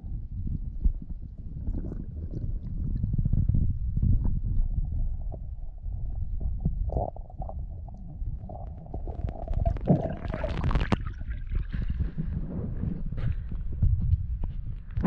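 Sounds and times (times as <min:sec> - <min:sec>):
muffled underwater rumble: 0:00.0 - 0:15.0
underwater clicks and knocks: 0:06.1 - 0:13.0.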